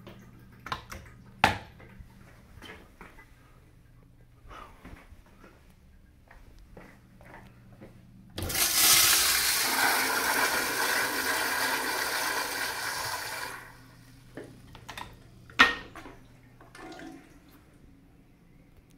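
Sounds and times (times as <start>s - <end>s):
toilet flushing: 8.4s - 14.1s, 16.6s - 17.7s.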